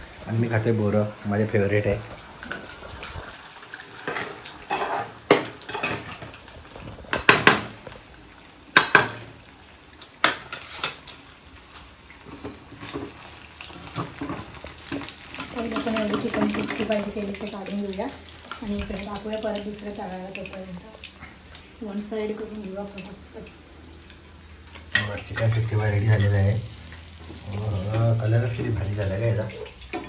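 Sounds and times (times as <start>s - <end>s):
faint frying sizzle: 0.0s - 30.0s
metal utensils clinking on pots: 4.0s - 6.2s, 13.9s - 17.4s.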